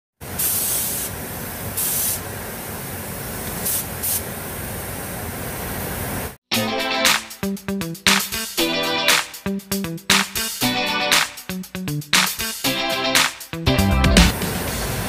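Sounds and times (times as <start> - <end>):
paint spray gun hissing: 0.2 - 6.4
music: 6.5 - 15.0.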